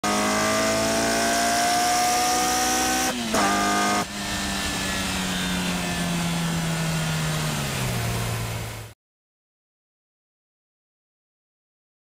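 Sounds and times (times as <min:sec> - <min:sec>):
car engine accelerating: 0:00.0 - 0:09.0.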